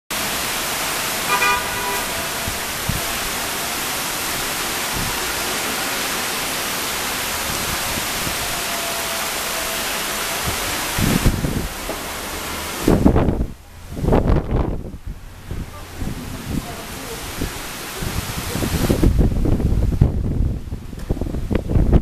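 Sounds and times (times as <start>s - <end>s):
heavy rain pouring: 0.1s - 22.0s
car horn toot: 1.2s - 3.0s.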